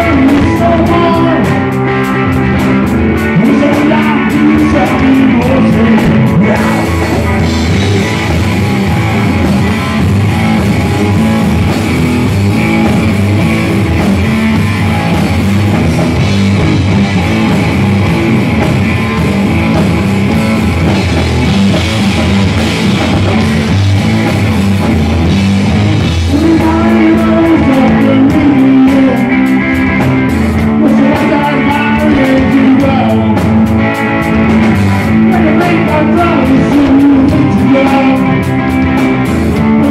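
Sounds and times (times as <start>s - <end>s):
bass guitar: 0.0s - 39.9s
distorted electric guitar: 0.0s - 39.9s
drum kit: 0.0s - 39.9s
lead vocals: 0.0s - 39.9s.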